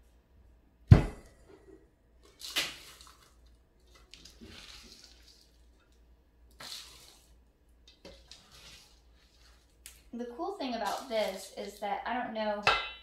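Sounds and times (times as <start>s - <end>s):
scraping seed mix in steel bowl: 6.6s - 11.9s.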